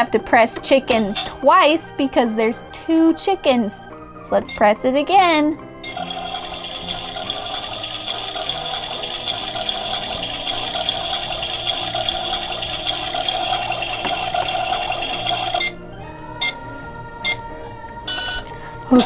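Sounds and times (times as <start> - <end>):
steady electronic tone: 5.8 - 15.8.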